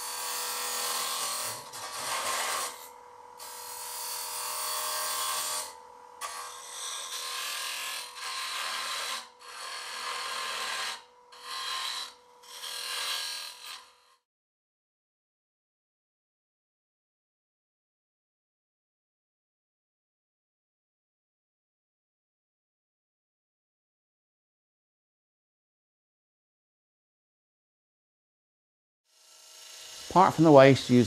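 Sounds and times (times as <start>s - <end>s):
lathe tool scraping wood shavings: 0.6s - 3.6s, 4.7s - 14.2s, 29.3s - 31.0s.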